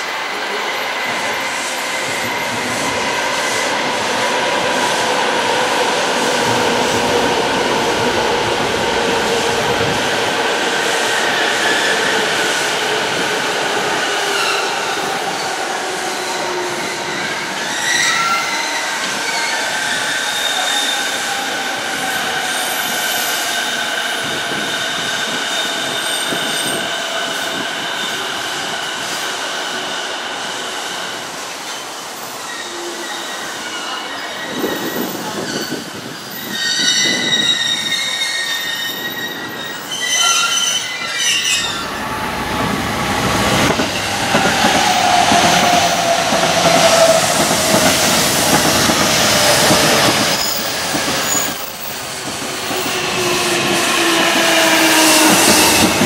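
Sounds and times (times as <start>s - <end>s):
rough train noise: 0.0s - 56.0s
wheel and brake squeal: 32.4s - 41.9s.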